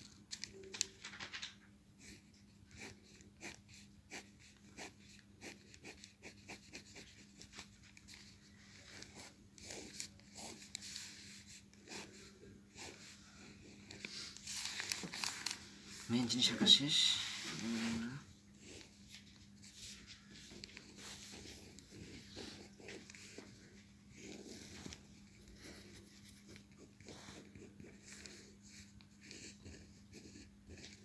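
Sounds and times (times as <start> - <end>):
pen scratching on paper: 2.0 - 14.1, 18.6 - 31.0.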